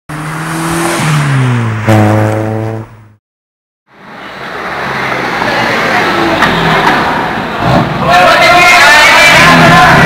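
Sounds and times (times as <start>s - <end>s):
car engine revving: 0.1s - 3.2s.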